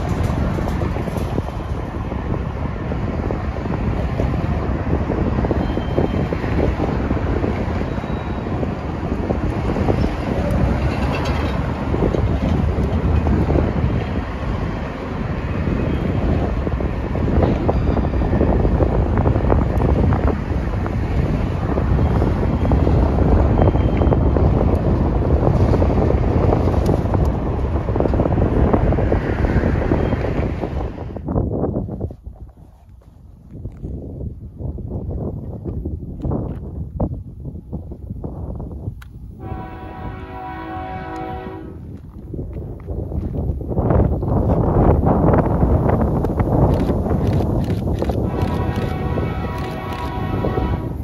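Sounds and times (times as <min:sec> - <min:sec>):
train wheels rumbling on rail: 0:00.0 - 0:51.0
wind buffeting microphone: 0:00.0 - 0:51.0
clicks and clanks: 0:10.8 - 0:13.3.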